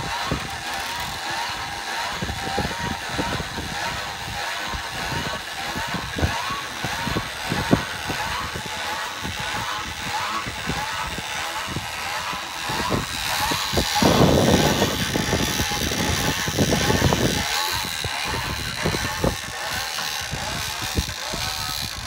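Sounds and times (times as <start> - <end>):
rough rushing noise: 0.0 - 22.0
winch ratchet clicking: 0.0 - 22.0.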